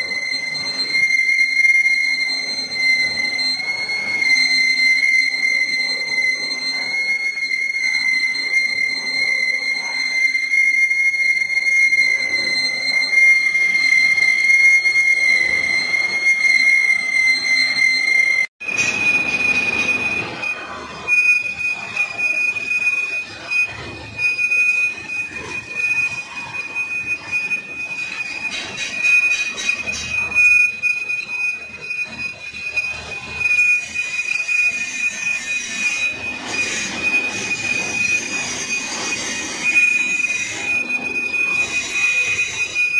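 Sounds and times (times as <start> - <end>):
high-pitched metallic squeal: 0.0 - 42.9
lathe running: 0.0 - 42.9.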